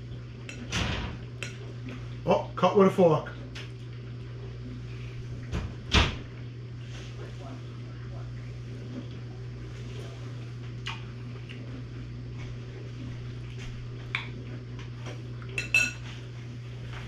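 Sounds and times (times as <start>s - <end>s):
steady low hum: 0.0s - 17.0s
fork clinking against a bowl: 15.6s - 16.0s.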